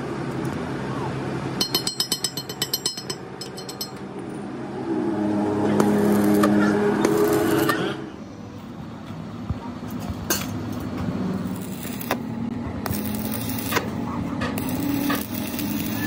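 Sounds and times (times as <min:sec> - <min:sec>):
machine humming: 0:03.3 - 0:08.7, 0:11.0 - 0:16.0.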